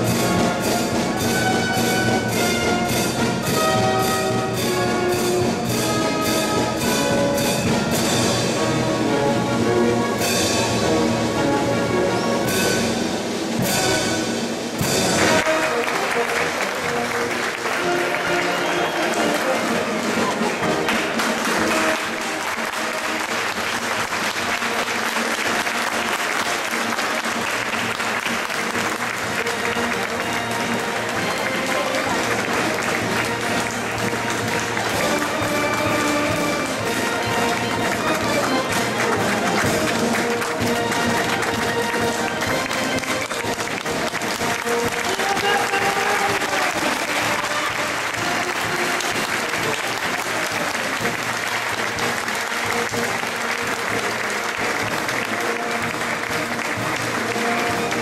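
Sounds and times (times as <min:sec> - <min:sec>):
music playing: 0:00.0 - 0:58.0
crowd applauding: 0:14.8 - 0:58.0.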